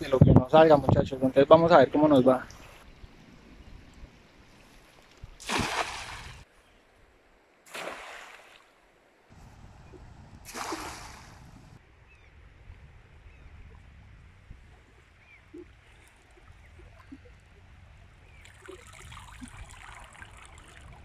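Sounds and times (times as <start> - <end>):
faint river flowing: 1.9 - 21.0
water splashing: 5.4 - 6.5, 7.7 - 8.8, 9.4 - 11.8, 18.3 - 21.0.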